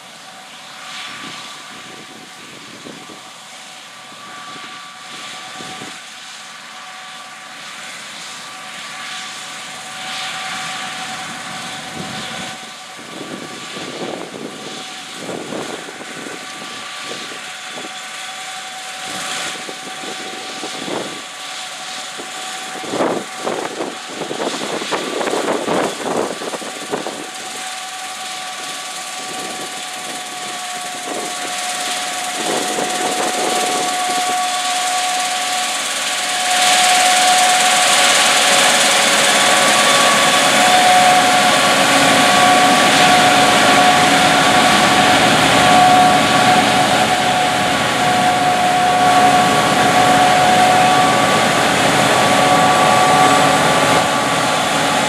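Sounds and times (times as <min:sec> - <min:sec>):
combine harvester machinery whine: 0:00.0 - 0:55.0
rumbling noise bursts: 0:29.1 - 0:55.0.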